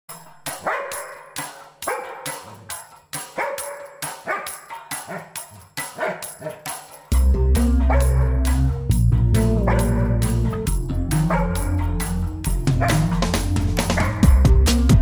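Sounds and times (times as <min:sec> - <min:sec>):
dog barking: 0:00.5 - 0:06.8, 0:07.8 - 0:08.6, 0:09.6 - 0:10.5, 0:11.2 - 0:12.1, 0:12.7 - 0:13.2, 0:13.9 - 0:14.4.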